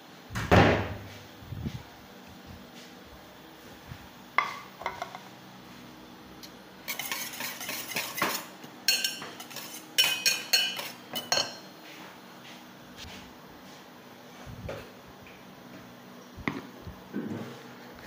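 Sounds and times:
whisk scraping a steel bowl: 0:06.8 - 0:11.4
whisk clinking on metal bowl: 0:06.9 - 0:11.7.

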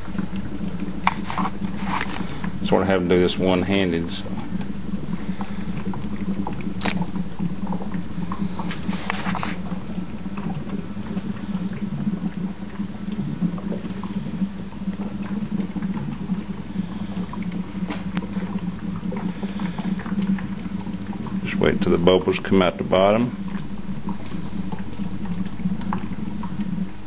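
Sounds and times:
gas bubbling through water: 0:00.0 - 0:27.0
low wavering hum: 0:00.0 - 0:27.0.

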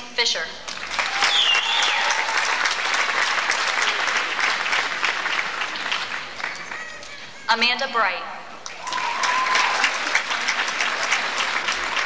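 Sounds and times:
audience clapping: 0:00.6 - 0:07.4, 0:08.6 - 0:12.0
high-pitched cheer: 0:00.9 - 0:04.4, 0:08.7 - 0:12.0.

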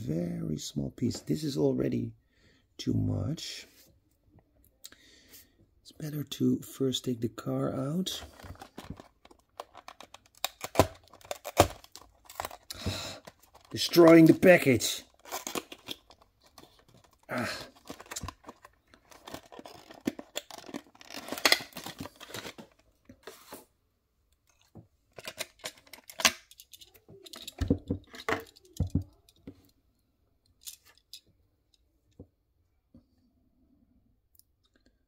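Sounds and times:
plastic tray crackling: 0:08.3 - 0:22.8.

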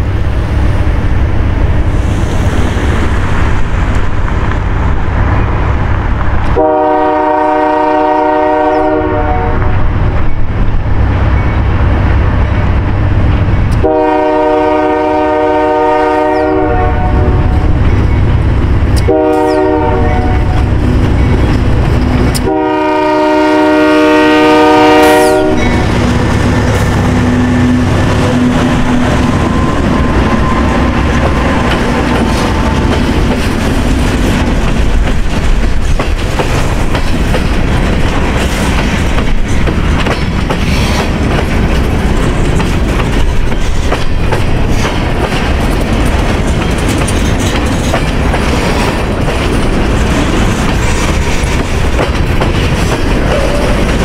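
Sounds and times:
locomotive engine rumbling: 0:00.0 - 0:54.0
locomotive air horn blasts: 0:06.5 - 0:09.8, 0:13.8 - 0:17.6, 0:19.0 - 0:20.7, 0:22.4 - 0:25.9
wheels clacking over rail joints: 0:25.4 - 0:54.0.

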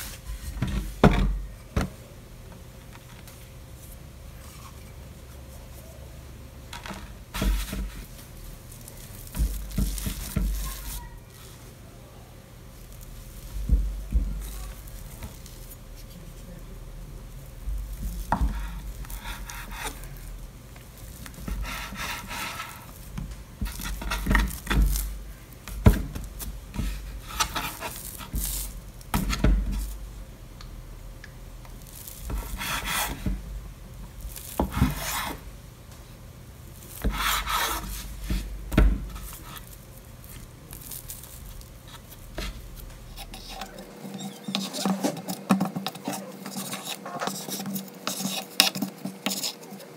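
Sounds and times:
hands kneading dough: 0:00.0 - 0:49.9
knife cutting dough: 0:07.3 - 0:08.2, 0:08.8 - 0:11.1, 0:17.8 - 0:20.3, 0:21.0 - 0:30.0, 0:31.8 - 0:33.4, 0:34.3 - 0:35.4, 0:36.8 - 0:49.9.

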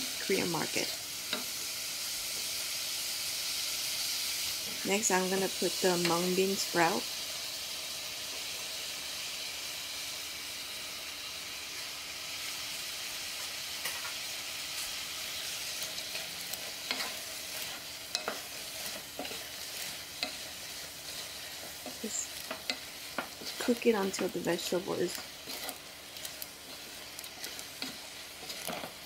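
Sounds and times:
food sizzling in pot: 0:00.0 - 0:29.0
wooden spatula scraping pot: 0:15.7 - 0:29.0.

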